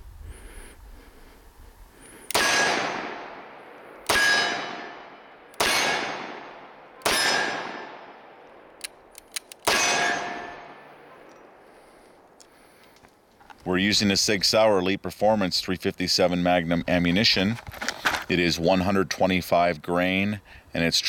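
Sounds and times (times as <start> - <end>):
revolver gunshots ringing: 2.3 - 8.8, 9.6 - 11.6.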